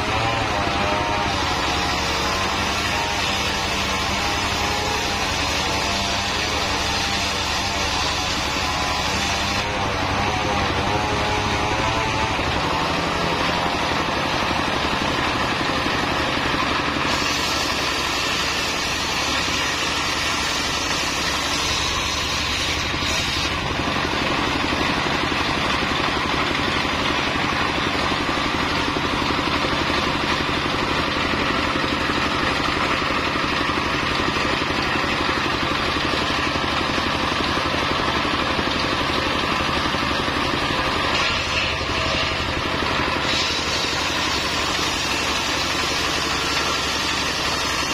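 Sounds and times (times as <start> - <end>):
circular saw cutting wood: 0.0 - 47.9
diesel engine running: 9.6 - 47.9.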